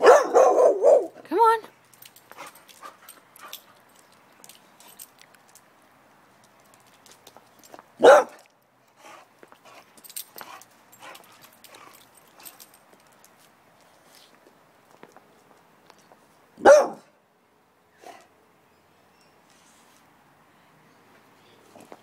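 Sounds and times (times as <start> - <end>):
dog barking: 0.0 - 1.2, 8.0 - 8.4, 16.6 - 17.1
faint clicks and rustles: 1.6 - 16.5.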